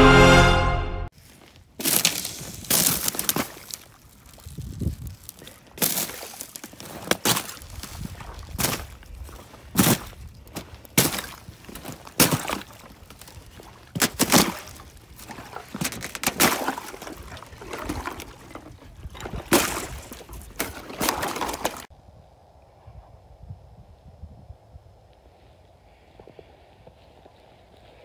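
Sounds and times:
footsteps cracking thin ice: 1.1s - 21.9s
water sloshing underfoot: 1.2s - 21.9s.

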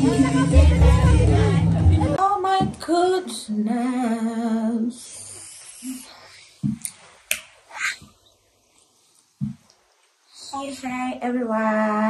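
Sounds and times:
woman singing: 0.0s - 5.0s.

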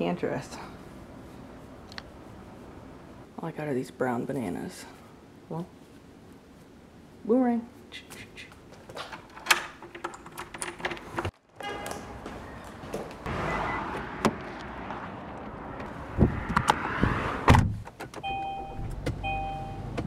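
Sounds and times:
car warning chime beeping: 13.4s - 14.0s, 18.2s - 20.0s
car door shutting: 16.5s - 20.0s.

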